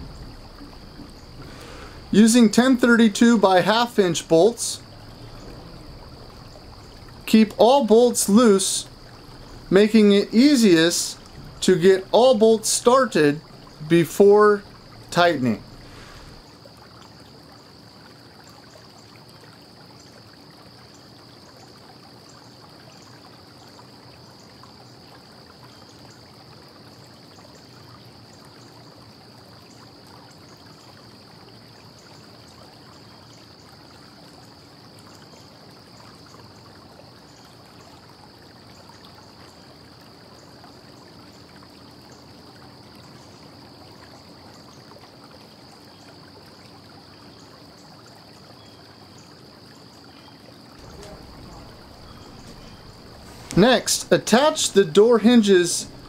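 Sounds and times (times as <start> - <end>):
low hum: 0.0 - 3.3, 4.0 - 16.4, 50.8 - 55.0
steady hiss: 0.0 - 16.6, 50.8 - 56.0
faint high-pitched whine: 0.0 - 17.6, 48.6 - 56.0.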